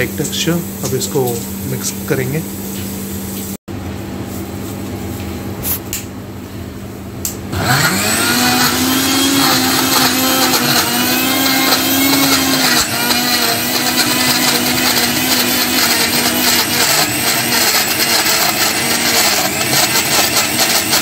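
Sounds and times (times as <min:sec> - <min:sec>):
blender motor running: 0:07.5 - 0:21.0.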